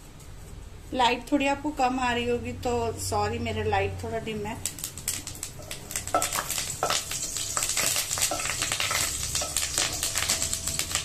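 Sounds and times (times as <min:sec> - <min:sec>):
seeds popping in hot oil: 0:04.4 - 0:11.0.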